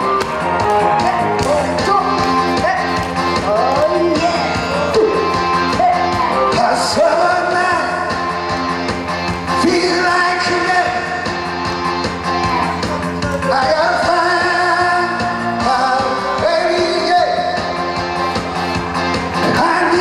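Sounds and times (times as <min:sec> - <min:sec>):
backing music with steady beat: 0:00.0 - 0:20.0
man singing into microphone: 0:05.7 - 0:08.2, 0:09.6 - 0:11.2, 0:12.9 - 0:17.7, 0:19.4 - 0:20.0.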